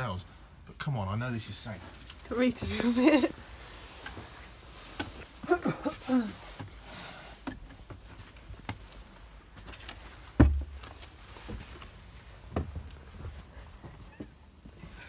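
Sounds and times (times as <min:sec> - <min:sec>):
heavy thump: 0:10.4 - 0:10.8
knocks on wooden ladder: 0:10.4 - 0:10.8.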